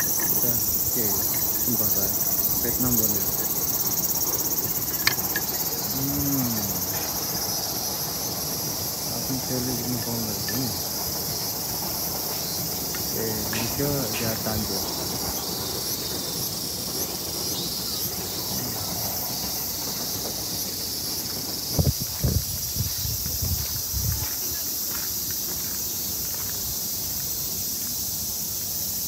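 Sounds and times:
faint voices: 0.0 - 7.5, 9.1 - 11.0, 13.1 - 15.3, 18.2 - 19.4
insect chorus: 0.0 - 29.0.

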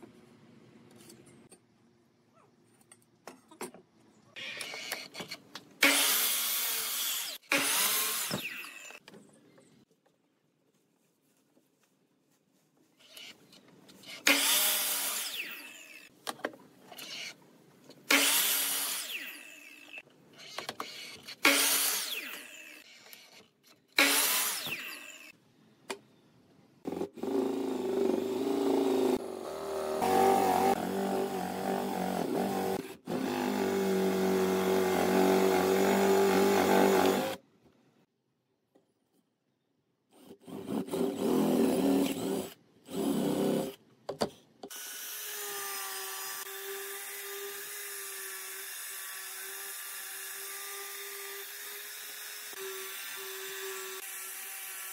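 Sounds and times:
mitre saw cutting wood: 5.8 - 9.0, 14.0 - 16.1, 18.1 - 25.4, 26.9 - 37.4, 44.7 - 54.9
cordless drill boring into wood: 32.7 - 37.4.

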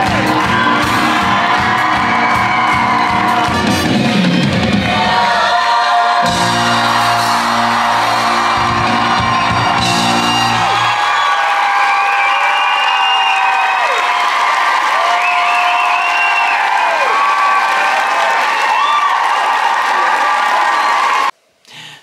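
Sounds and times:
theatre band playing: 0.0 - 11.2
audience whooping and cheering: 0.0 - 21.4.

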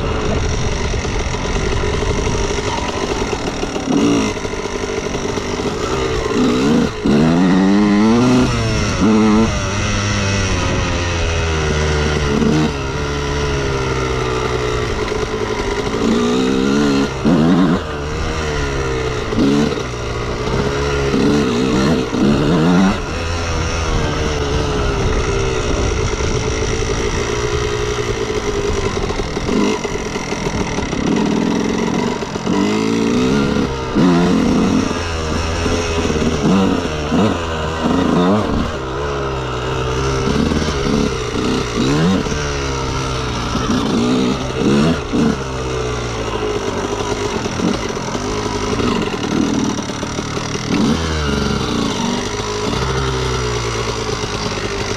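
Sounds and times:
two-stroke motorcycle engine revving: 0.0 - 54.9.

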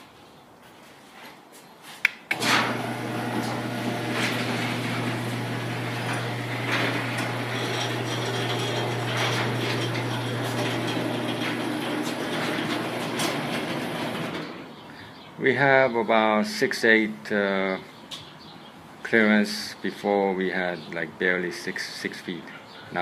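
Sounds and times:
garage door opener click: 2.3 - 14.7
opener motor humming: 2.3 - 14.7
garage door clattering on tracks: 2.3 - 14.8.

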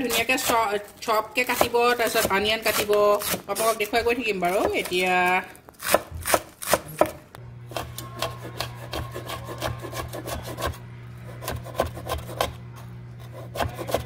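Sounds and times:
knife chopping on wooden board: 5.8 - 10.8, 11.4 - 12.6, 13.2 - 14.0
low steady hum: 6.9 - 14.0.

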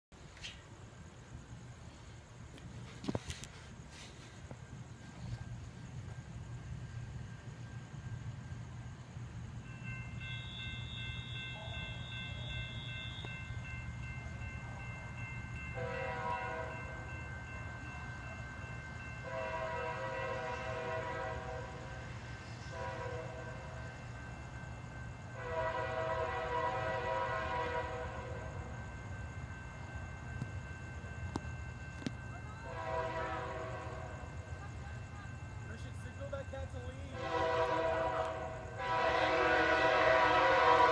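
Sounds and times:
distant locomotive air horn: 10.3 - 13.5, 15.7 - 17.0, 19.2 - 23.9, 25.3 - 28.7, 32.6 - 34.4, 37.1 - 40.9.

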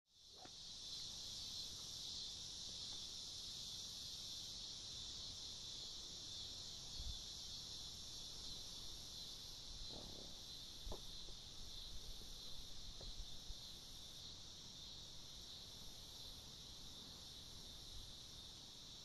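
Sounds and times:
insects chirring: 0.1 - 19.0.

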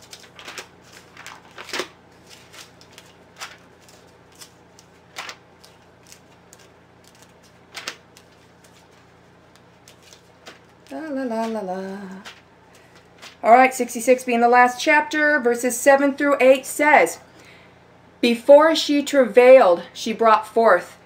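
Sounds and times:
page flips: 0.0 - 11.6, 12.2 - 13.4
faint paper rustling: 0.0 - 13.5.

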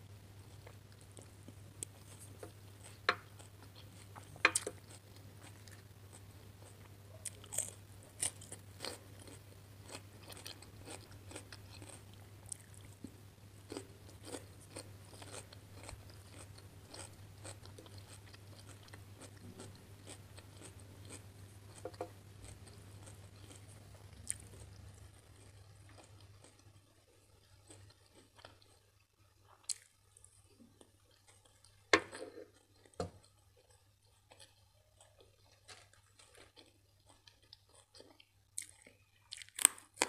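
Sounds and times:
steady low hum: 0.0 - 29.3
wet crunchy chewing: 0.5 - 13.1.

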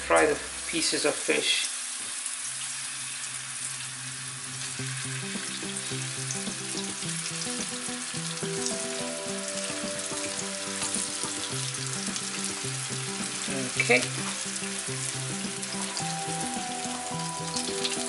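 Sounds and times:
fish sizzling in hot oil: 0.0 - 18.0
background music: 4.8 - 18.0.

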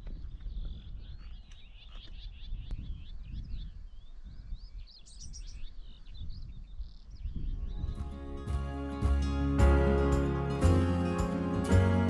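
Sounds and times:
songbirds chirping and trilling: 0.0 - 8.6
wind rumble on microphone: 0.0 - 8.6.

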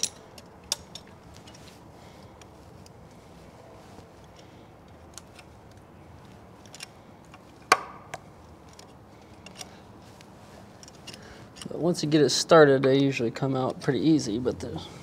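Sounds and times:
hand tool metal clicks: 0.0 - 1.6, 8.1 - 9.8.

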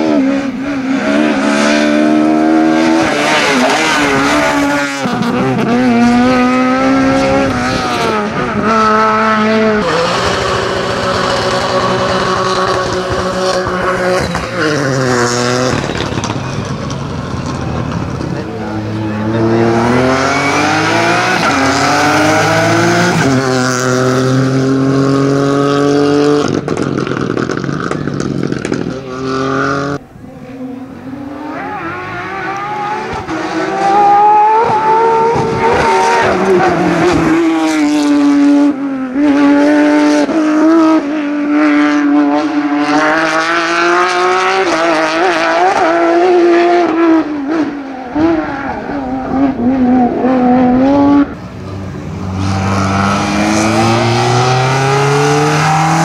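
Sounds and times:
car accelerating through gears: 0.0 - 56.0
rally car engines revving past: 0.0 - 56.0.

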